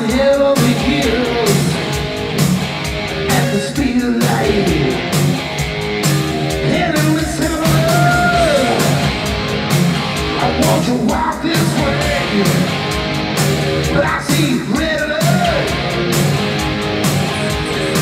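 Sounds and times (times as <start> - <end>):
male lead vocal: 0.0 - 2.0, 3.2 - 5.2, 6.6 - 9.2, 10.4 - 12.8, 13.8 - 15.8
hard rock band playing: 0.0 - 18.0.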